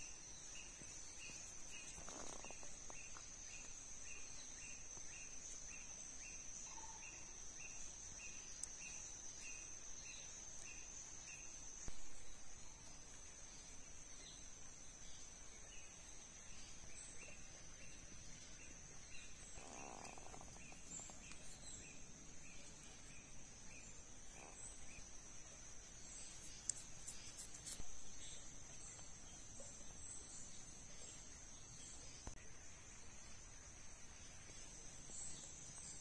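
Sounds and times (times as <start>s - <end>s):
insects droning: 0.0s - 36.0s
soft chirp: 15.1s - 32.4s.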